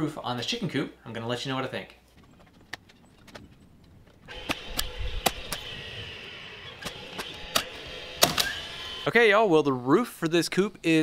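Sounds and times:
nailer driving nails: 4.3 - 6.0, 6.8 - 9.0
steady hum: 4.3 - 9.3.

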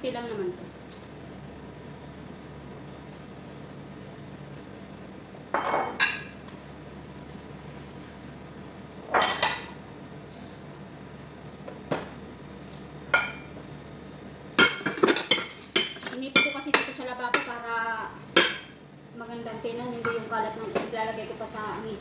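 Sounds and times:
dishes clinking in a sink: 5.5 - 6.4, 9.1 - 9.8, 13.1 - 13.5.

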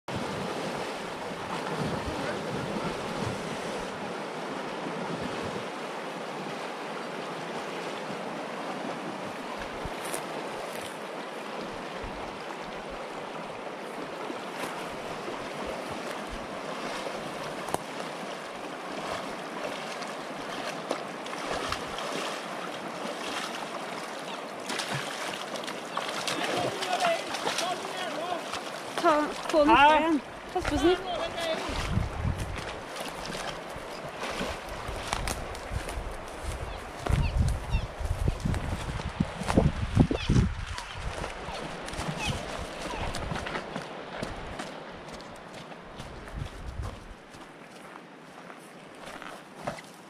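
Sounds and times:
wind buffeting microphone: 0.1 - 4.1, 29.2 - 45.2, 46.0 - 47.3
river rushing: 0.1 - 46.2.

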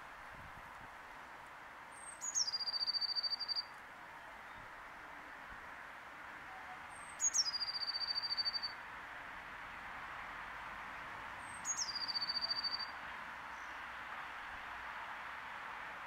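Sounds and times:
blue tit singing trills: 2.2 - 3.7, 11.6 - 12.9.

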